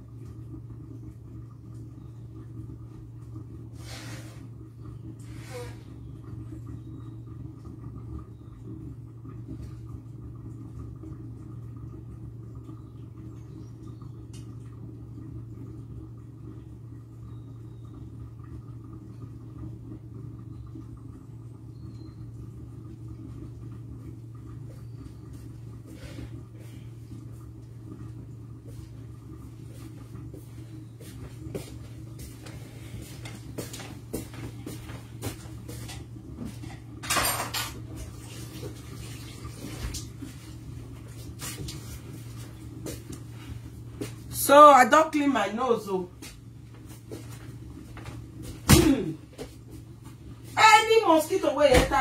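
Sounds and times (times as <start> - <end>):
steady low hum: 0.0 - 52.0
dishes clattering: 35.9 - 37.8.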